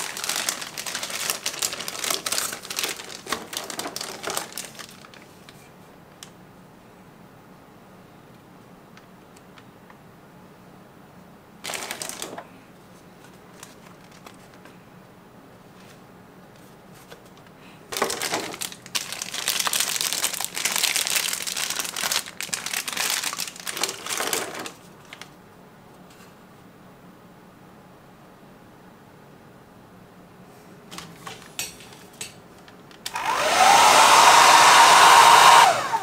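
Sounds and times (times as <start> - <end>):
plastic packaging crinkling: 0.0 - 5.6, 11.6 - 12.5, 13.2 - 14.7, 17.0 - 25.4.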